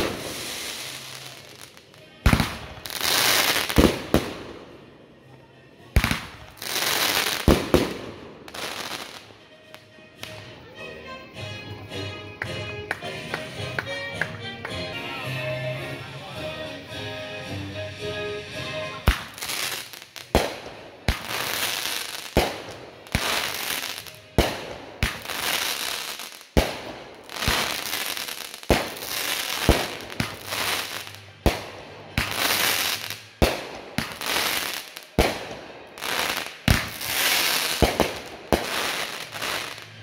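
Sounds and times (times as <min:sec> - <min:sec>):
firework bangs: 0:00.0 - 0:01.5, 0:02.2 - 0:04.7, 0:06.0 - 0:09.2, 0:19.1 - 0:40.0
firework crackling and hissing: 0:00.0 - 0:04.7, 0:06.0 - 0:09.3, 0:19.0 - 0:40.0.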